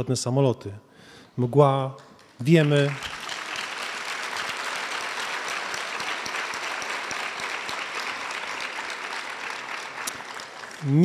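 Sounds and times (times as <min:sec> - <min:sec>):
audience applauding: 0:02.5 - 0:11.0.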